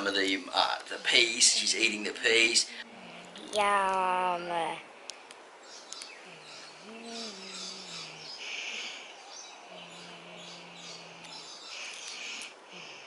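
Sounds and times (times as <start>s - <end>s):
birds chirping: 0.0s - 13.0s
faint low hum: 0.0s - 13.0s.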